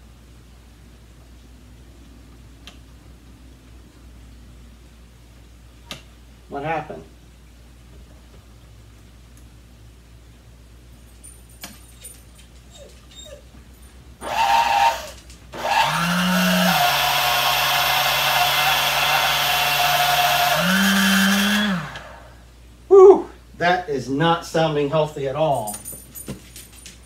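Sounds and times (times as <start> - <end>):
electric mixer motor buzzing: 14.2 - 22.4.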